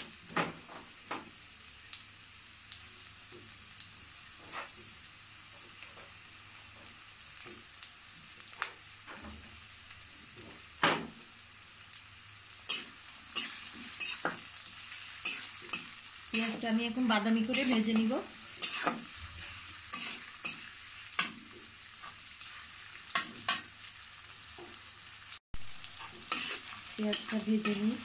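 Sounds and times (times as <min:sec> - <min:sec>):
onions sizzling in hot oil: 0:00.0 - 0:28.0.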